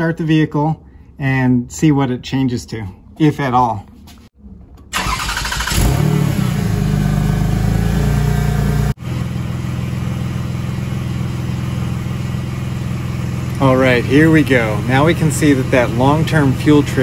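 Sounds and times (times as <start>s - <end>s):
car engine starting and idling: 4.4s - 17.0s.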